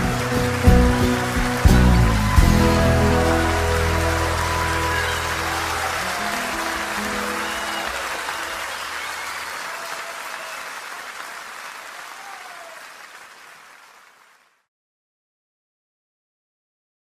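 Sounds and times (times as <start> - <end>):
music: 0.0 - 9.4
audience applauding: 0.0 - 14.7.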